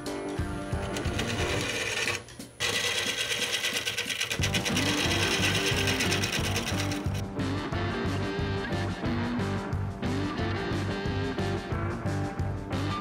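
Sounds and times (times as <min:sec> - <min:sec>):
background music with bass: 0:00.0 - 0:01.6, 0:04.4 - 0:13.0
wood lathe gouge clatter: 0:00.8 - 0:07.2.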